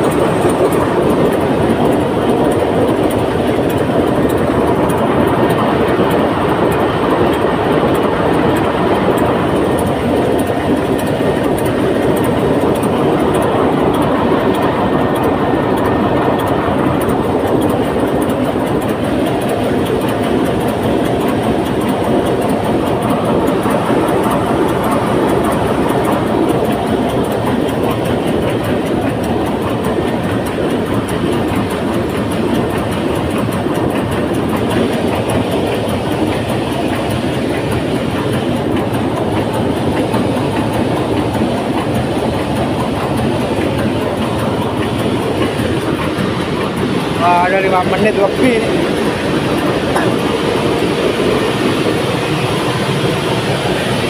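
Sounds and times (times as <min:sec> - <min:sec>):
diesel engine running: 0:00.0 - 0:54.0
rapid even clatter: 0:00.0 - 0:54.0.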